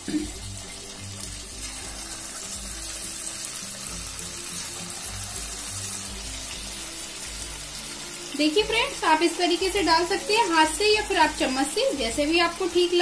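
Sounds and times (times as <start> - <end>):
background music with bass line: 0.0 - 8.9
food sizzling in hot oil: 0.0 - 13.0.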